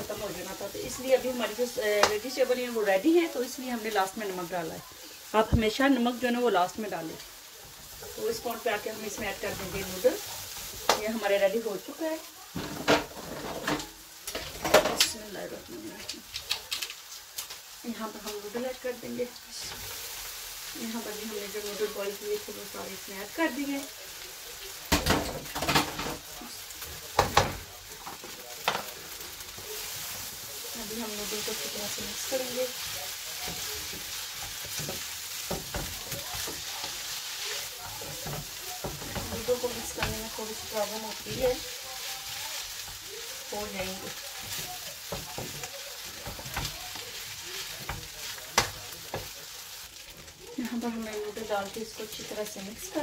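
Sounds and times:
food sizzling in a wok: 0.0 - 53.0
utensils clanking against cookware: 12.5 - 15.3, 24.9 - 29.0, 29.6 - 49.4.

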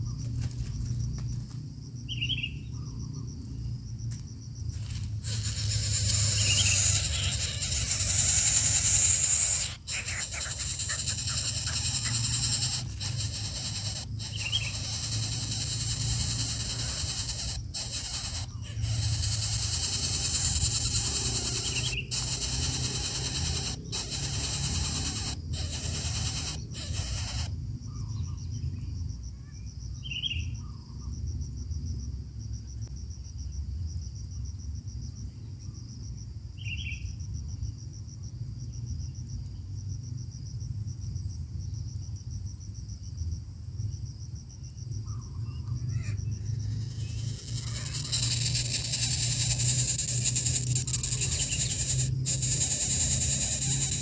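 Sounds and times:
insects buzzing and trilling: 0.0 - 54.0.

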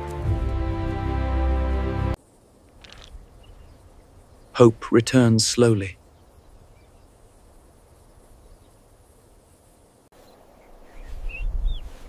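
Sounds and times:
faint steady hiss: 2.1 - 12.0
high bird-like chirps: 10.6 - 12.0.

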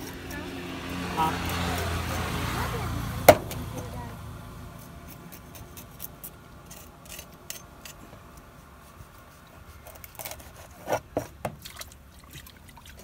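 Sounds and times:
knife scraping fish: 4.8 - 11.4.

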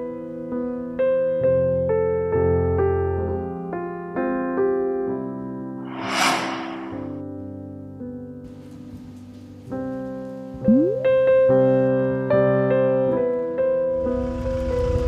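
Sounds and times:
rough noise: 5.9 - 7.2.

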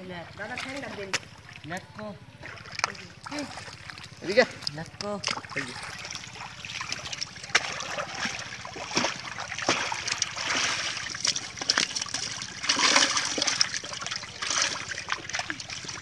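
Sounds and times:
water splashing and dripping: 0.4 - 16.0.

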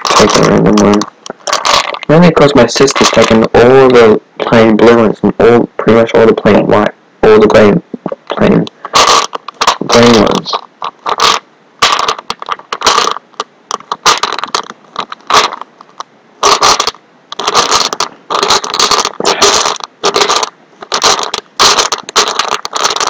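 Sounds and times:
rummaging in plastic box: 0.0 - 2.1.

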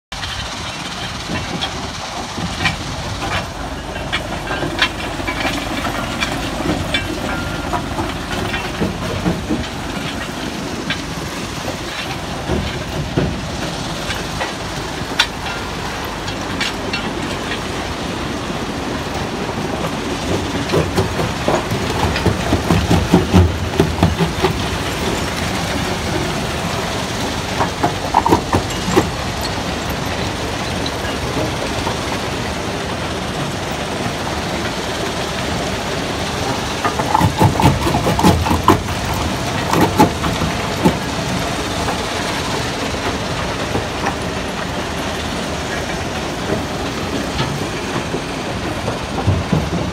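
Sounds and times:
stone crusher and conveyors din: 0.2 - 49.9
rock knocking and clatter: 27.6 - 29.2, 36.8 - 41.1.

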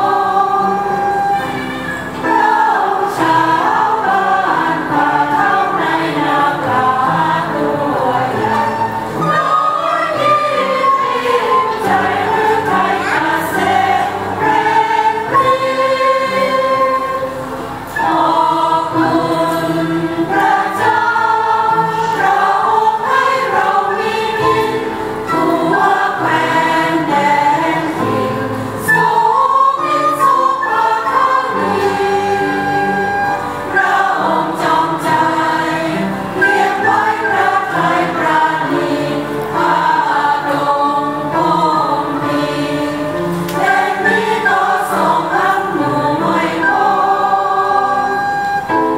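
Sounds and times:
end-blown flute: 0.0 - 5.6, 8.3 - 19.7, 28.8 - 35.7, 46.4 - 48.9
congregation singing a hymn: 0.0 - 48.9.

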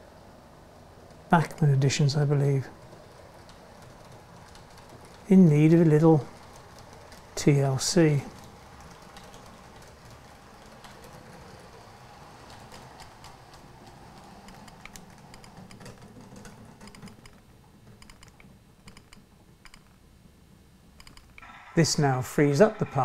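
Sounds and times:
model train wheels clicking: 2.7 - 17.4.

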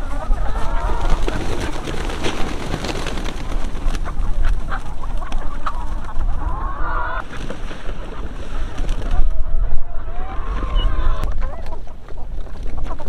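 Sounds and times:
hens clucking and squawking: 0.0 - 13.0.

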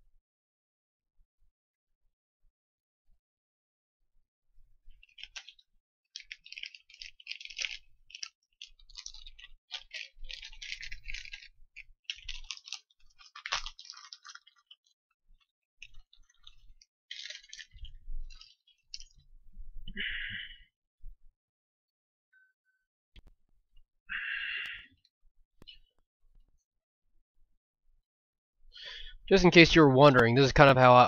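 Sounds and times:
hands rustling small parts: 4.8 - 19.8.

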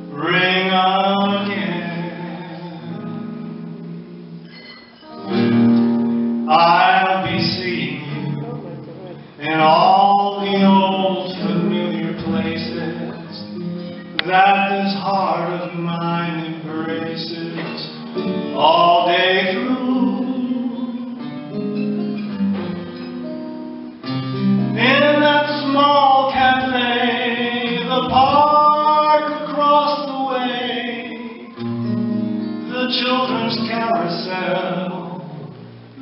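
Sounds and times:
man singing a ballad: 0.0 - 3.6, 6.5 - 21.7, 24.6 - 31.7, 32.6 - 35.5
guitar chords: 0.0 - 36.0.

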